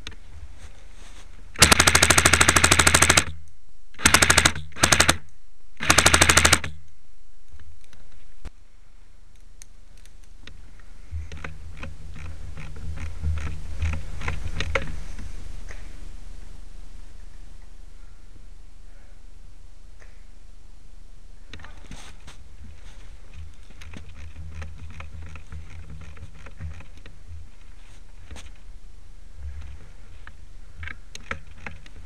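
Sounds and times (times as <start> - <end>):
airsoft rifle firing bursts: 1.6 - 3.4, 4.0 - 5.2, 5.8 - 6.8
faint irregular clicking: 9.3 - 15.8.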